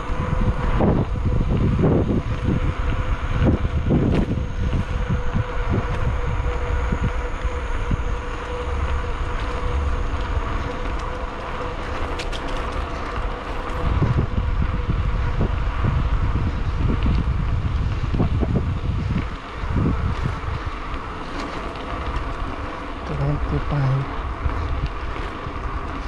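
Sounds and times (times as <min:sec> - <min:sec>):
faint steady hum: 0:00.0 - 0:26.0
wind buffeting microphone: 0:00.0 - 0:26.0
tyres rolling on concrete: 0:05.9 - 0:23.1, 0:24.0 - 0:26.0.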